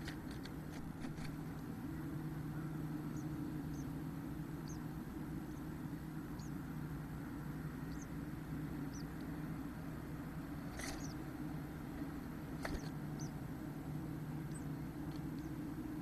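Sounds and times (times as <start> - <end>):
steady low hum: 0.0 - 16.0
faint high bird peeps: 2.5 - 6.7, 7.8 - 8.2, 8.8 - 9.3, 10.6 - 11.3, 12.6 - 13.4, 14.4 - 15.6.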